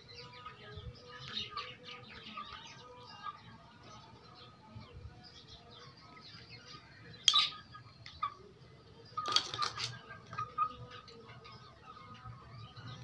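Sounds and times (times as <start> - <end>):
chickens pecking on metal bowl: 9.2 - 10.7.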